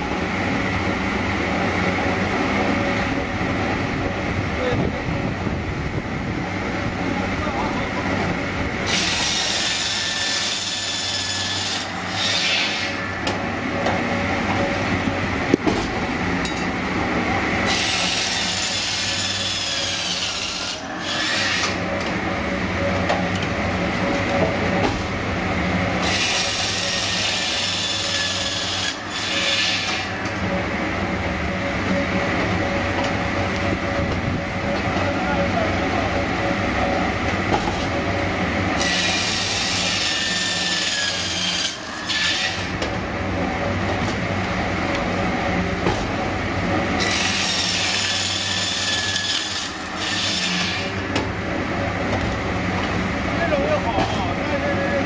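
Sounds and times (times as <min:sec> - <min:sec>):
sawing machine running: 0:00.0 - 0:55.0
circular saw cutting logs: 0:08.8 - 0:16.6, 0:17.2 - 0:22.2, 0:25.8 - 0:30.6, 0:38.7 - 0:43.1, 0:43.8 - 0:54.7.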